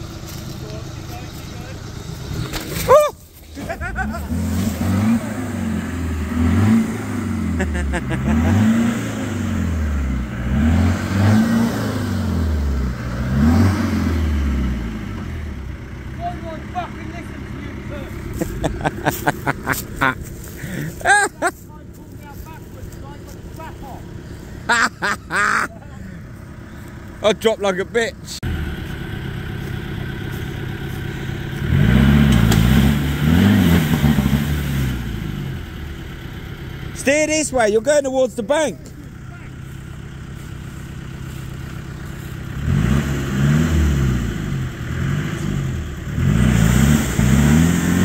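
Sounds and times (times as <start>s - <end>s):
diesel engine revving hard: 3.6s - 21.1s, 28.4s - 36.0s, 41.3s - 48.0s.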